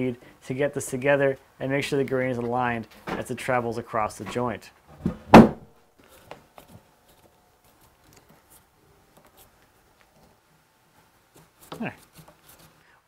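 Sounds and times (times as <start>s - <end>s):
wooden slab thunk: 5.0s - 5.7s.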